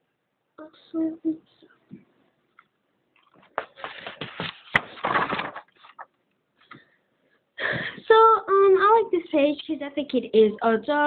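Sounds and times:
paper rustling and scraping: 3.3s - 6.1s.

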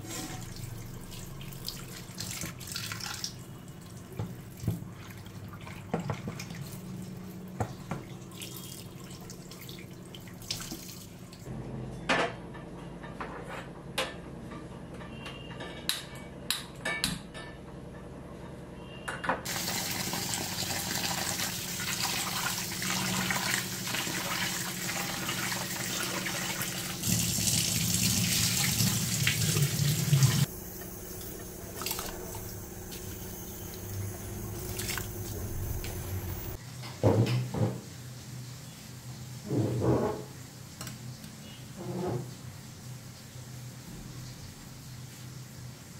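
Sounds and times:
tap water running into sink: 19.5s - 36.1s.

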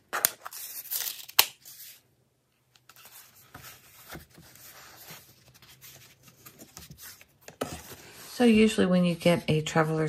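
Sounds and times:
cardboard rustling and scraping: 2.9s - 8.4s
cardboard papery rasp: 3.0s - 8.4s.

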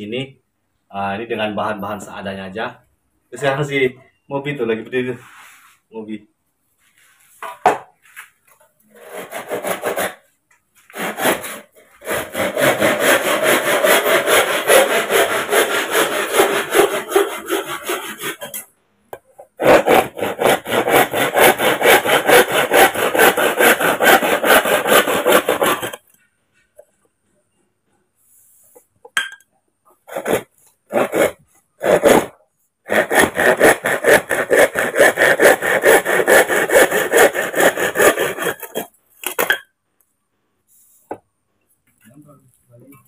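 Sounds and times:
hand saw cutting bamboo: 8.9s - 10.2s, 10.9s - 18.6s, 19.6s - 26.0s, 30.1s - 38.9s.

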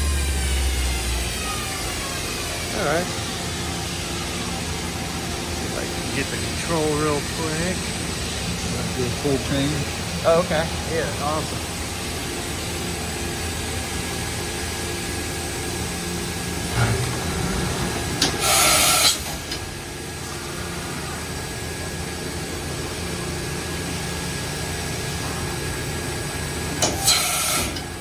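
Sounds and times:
machine steady hum: 0.0s - 28.0s
air hiss: 18.4s - 19.3s.

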